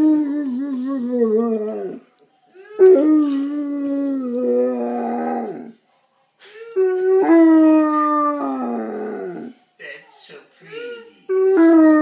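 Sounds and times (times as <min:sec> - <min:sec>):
dog howling: 0:00.0 - 0:02.0, 0:02.6 - 0:05.7, 0:06.8 - 0:09.5, 0:11.3 - 0:12.0.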